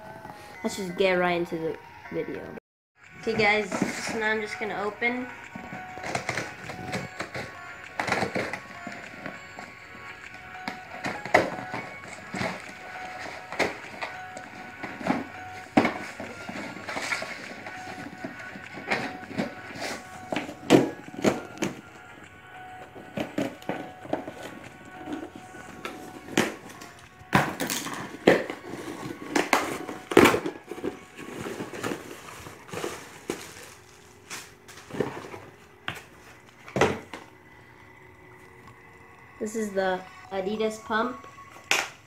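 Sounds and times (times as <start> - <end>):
cardboard and paper crackling: 11.0 - 21.9, 23.0 - 37.2.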